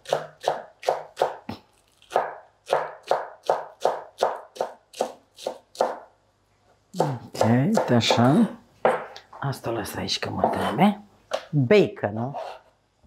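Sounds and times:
knife chopping on wooden board: 0.0s - 6.1s, 7.0s - 9.1s.

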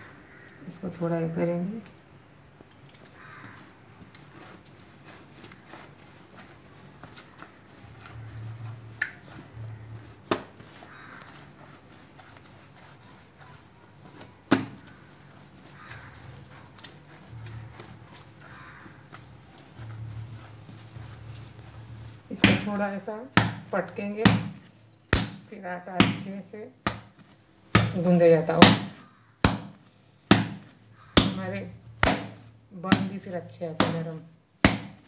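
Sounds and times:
bangles clinking: 1.5s - 5.1s, 16.6s - 21.6s
dough being kneaded thuds: 4.2s - 35.0s.

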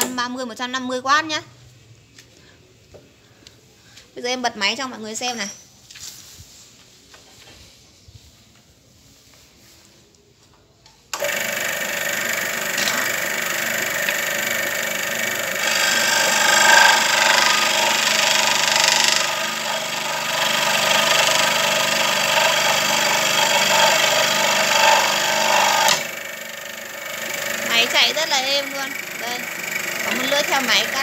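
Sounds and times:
electric scroll saw running: 11.2s - 31.0s.

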